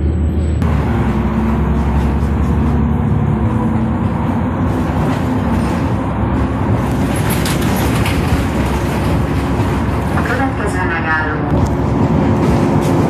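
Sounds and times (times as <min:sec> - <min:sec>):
bus engine running: 0:00.0 - 0:13.0
tyre and road noise: 0:00.0 - 0:13.0
sharp rattles: 0:06.8 - 0:10.2.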